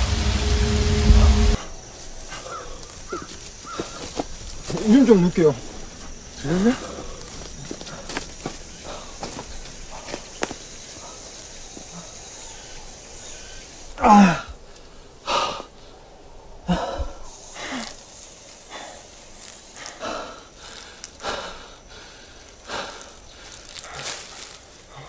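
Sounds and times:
man breathing hard: 6.4 - 10.2, 11.9 - 15.9, 16.6 - 18.0, 18.6 - 25.0
man groaning: 14.0 - 14.5.

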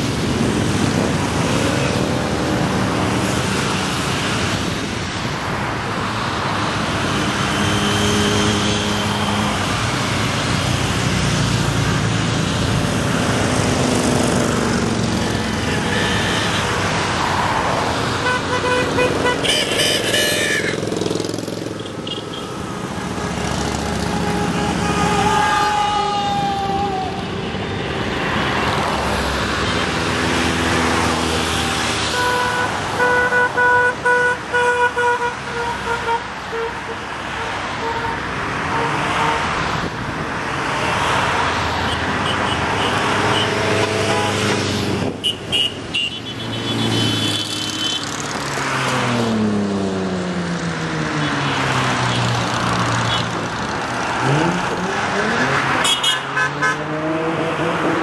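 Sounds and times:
motorcycles and cars passing: 0.0 - 58.0
vehicle horn short blasts: 18.3 - 20.8.

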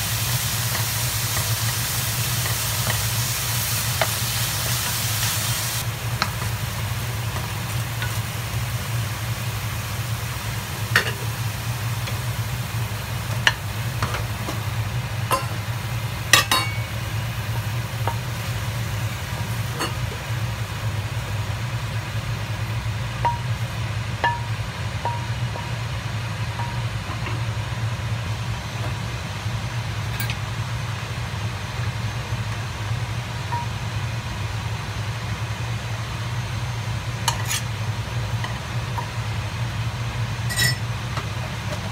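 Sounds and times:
faint sizzling: 0.0 - 29.1
wooden spoon tapping metal pan: 23.2 - 25.8.

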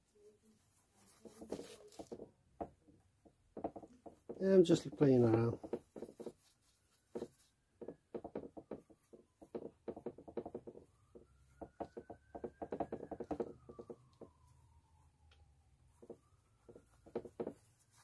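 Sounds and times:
paintbrush strokes on canvas: 0.0 - 2.3, 4.4 - 7.6, 15.9 - 18.0.

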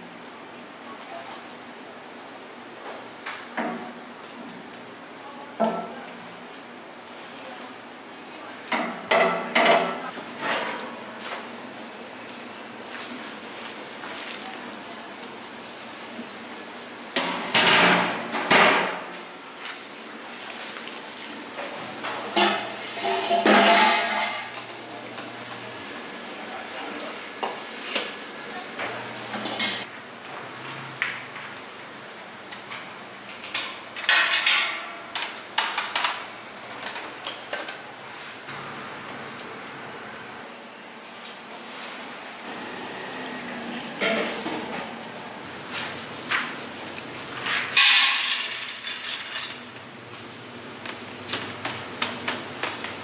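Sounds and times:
metal pots clanking: 22.0 - 24.6, 47.4 - 49.6
steel pot clanking and scraping: 22.3 - 24.6.

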